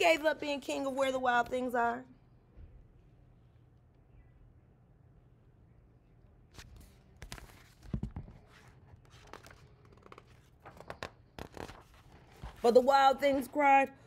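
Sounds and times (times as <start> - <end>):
book pages rustling: 6.5 - 13.5.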